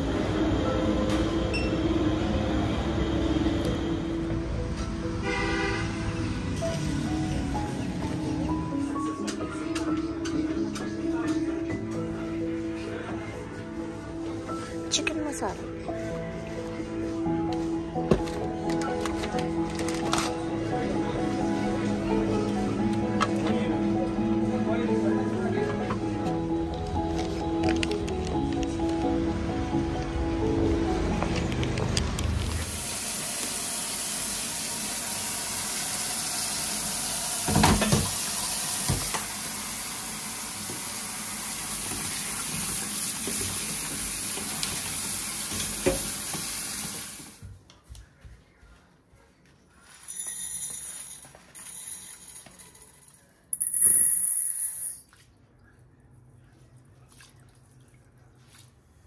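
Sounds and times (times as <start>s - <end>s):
tap water running into sink: 32.7s - 47.4s.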